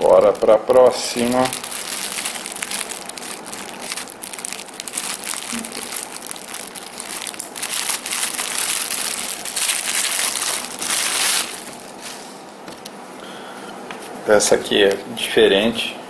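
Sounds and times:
plastic bag crinkling: 0.0s - 12.1s.

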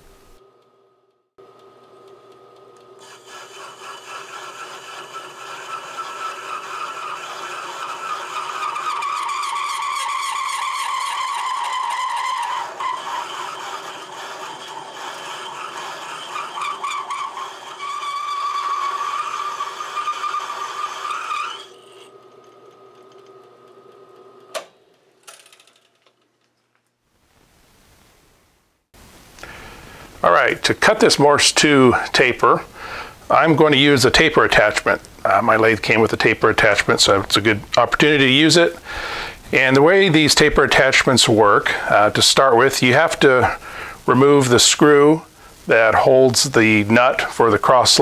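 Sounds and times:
lathe running: 1.4s - 25.9s
parting tool cutting steel: 3.0s - 23.4s.

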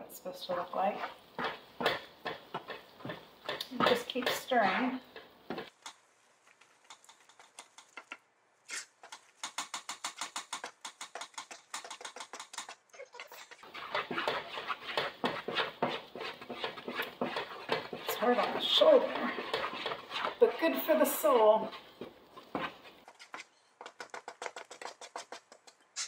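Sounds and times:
wooden spoon stirring in metal pot: 0.0s - 26.0s.

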